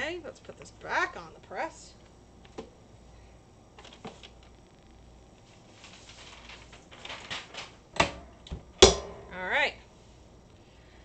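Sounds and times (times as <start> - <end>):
soft rustle: 5.4 - 7.2.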